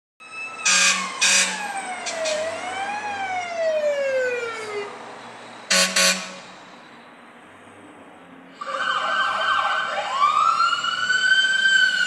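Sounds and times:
fire truck siren wailing: 0.2 - 5.0, 5.7 - 6.4, 8.6 - 12.0
horn blasts: 5.7 - 6.5.

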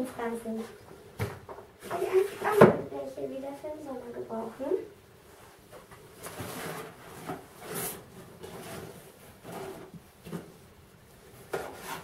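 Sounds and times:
rustles and scrapes: 1.8 - 2.6, 5.2 - 12.0.

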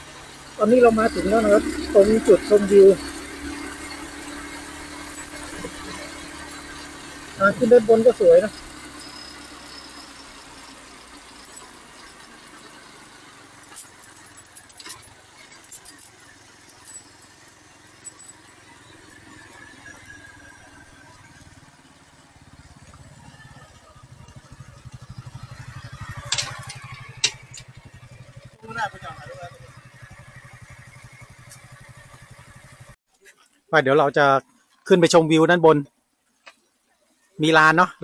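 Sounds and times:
motorcycle engine running: 0.0 - 33.1
faint squeal: 0.6 - 12.3.

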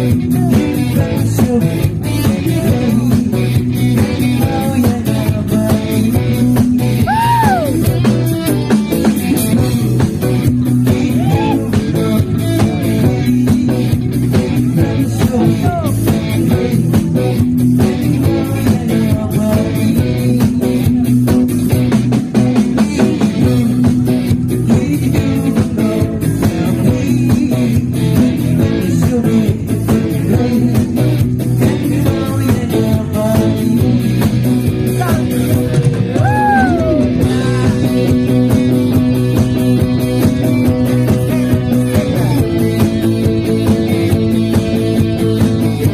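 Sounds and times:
person singing into a microphone: 0.0 - 35.4
drum kit: 0.0 - 45.9
electric bass: 0.0 - 45.9
electric guitars: 0.0 - 45.9.

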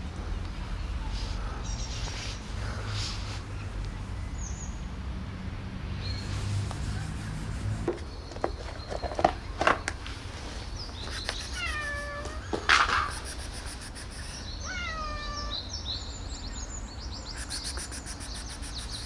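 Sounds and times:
cat meowing: 11.5 - 13.4, 14.6 - 15.7.

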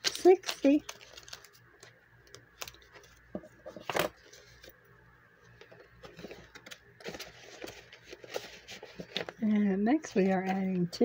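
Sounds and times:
paper crackle: 0.0 - 4.8, 5.6 - 10.8
paper banknotes rustling: 6.0 - 10.6.

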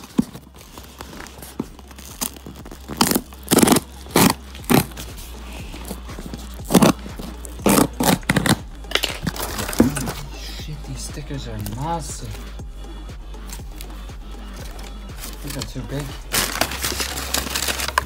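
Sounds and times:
hand tool slitting box tape: 2.2 - 4.9.

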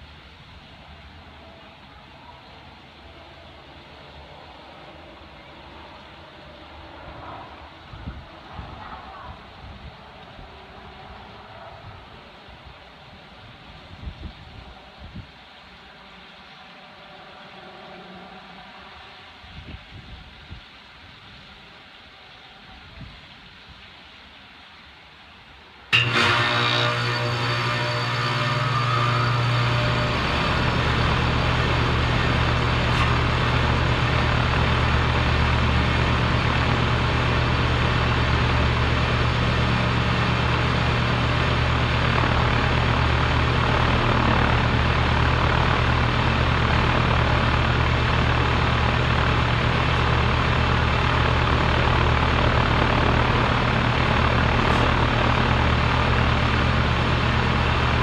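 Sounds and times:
compressor running: 26.0 - 58.0.

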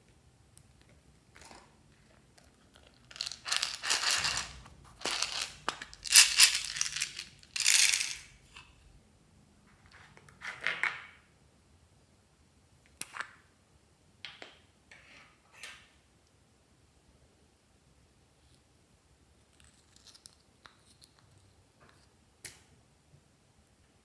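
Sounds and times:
beads crackling into slime: 2.7 - 8.2.

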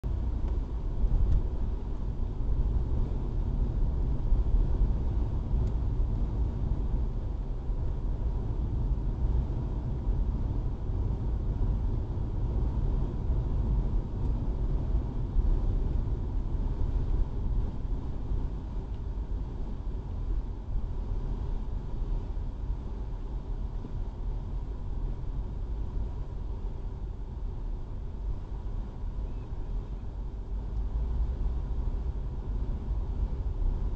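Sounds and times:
car engine and tyre rumble: 0.0 - 33.9.

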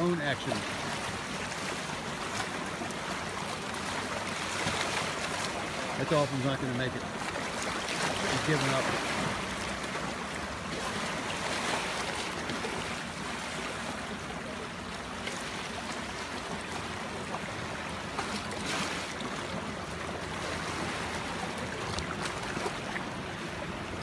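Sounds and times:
people wading and splashing: 0.0 - 24.0
shallow sea water washing: 0.0 - 24.0
wind: 0.0 - 24.0.

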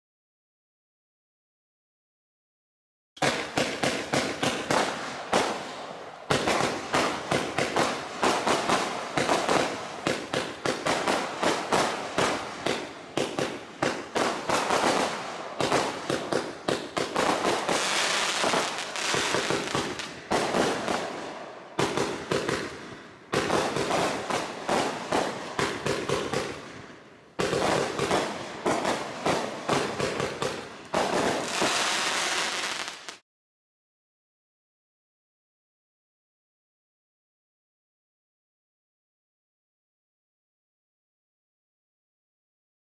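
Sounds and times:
firework crackling: 3.2 - 33.2.

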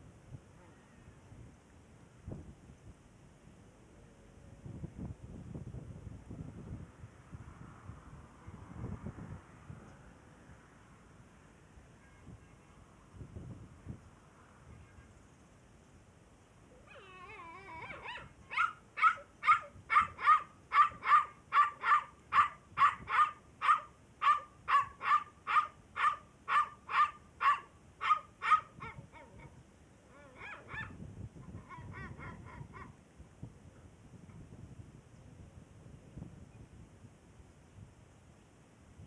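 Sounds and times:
puppy whining: 16.8 - 18.3
puppy yipping: 16.8 - 29.5, 30.1 - 31.0.

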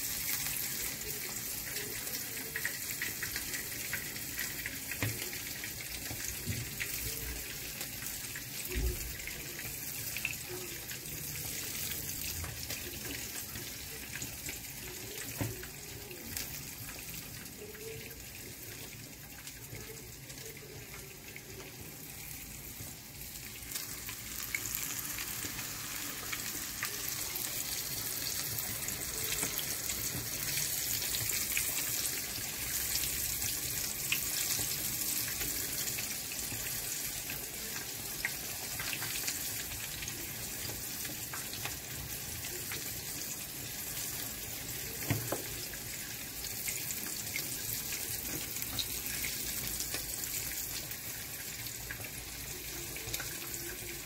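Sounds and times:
fish frying in oil: 0.0 - 54.0.

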